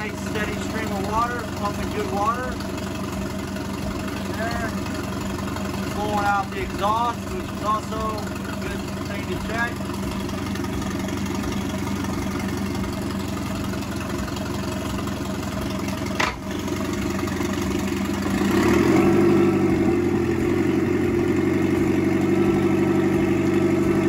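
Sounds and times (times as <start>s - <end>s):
outboard motor running: 0.0s - 24.0s
sharp clunk: 16.2s - 16.4s.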